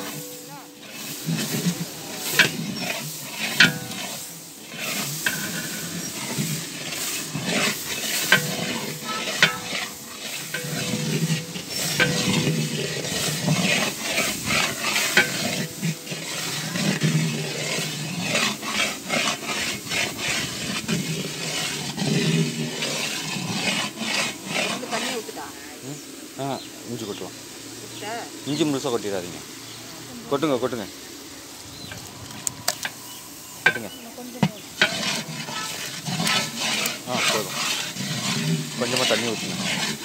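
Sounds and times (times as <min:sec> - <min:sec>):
ladle stirring and scraping: 0:00.0 - 0:25.6, 0:31.8 - 0:40.0
masala sizzling in oil: 0:00.0 - 0:40.0
ladle knocking against pot: 0:08.3 - 0:13.9.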